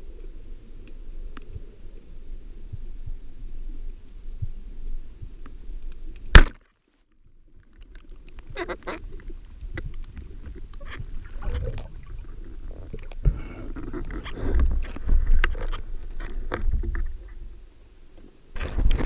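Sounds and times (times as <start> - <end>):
underwater water rushing and sloshing: 7.2 - 19.0.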